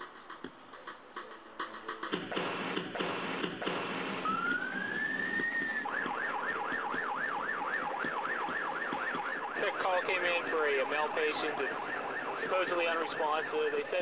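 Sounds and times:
ambulance siren wailing and yelping: 3.9s - 14.0s.

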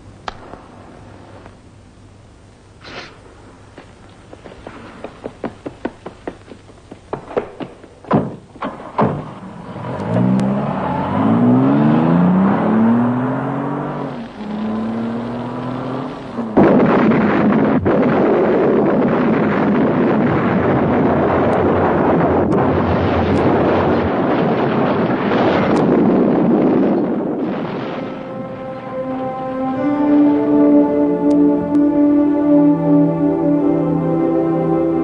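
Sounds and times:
sharp knocks: 4.6s - 9.4s
rushing noise: 9.2s - 35.0s
car engine revving: 9.4s - 17.3s
loud explosion: 16.4s - 28.9s.

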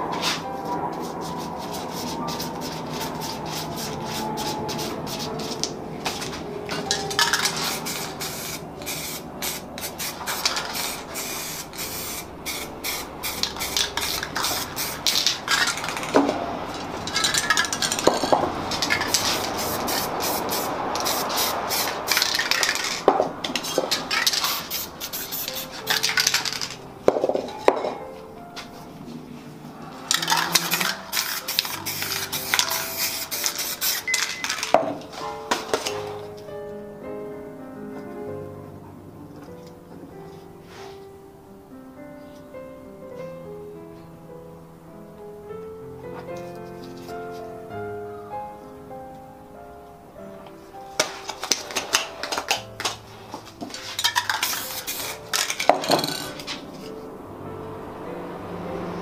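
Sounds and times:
spray paint can hissing: 0.2s - 26.8s, 30.1s - 34.8s, 51.0s - 56.6s.

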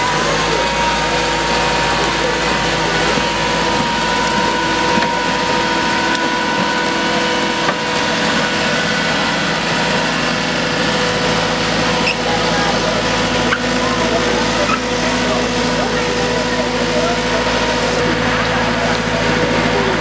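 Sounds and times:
engine running steadily: 0.0s - 20.0s.

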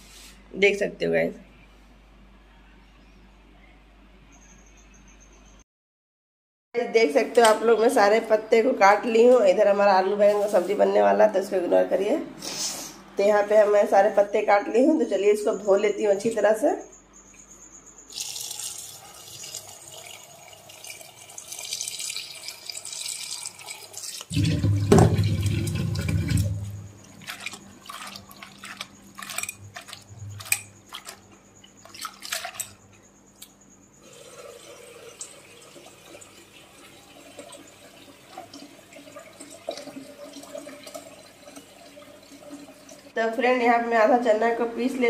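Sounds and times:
tap running into steel bowl: 24.3s - 26.7s.

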